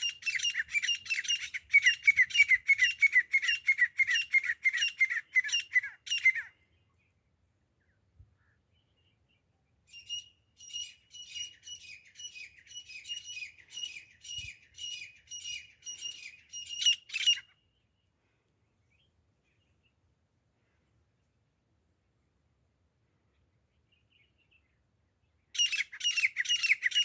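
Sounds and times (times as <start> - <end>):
francolin calling: 0.0 - 6.8, 9.9 - 17.6, 25.6 - 27.0.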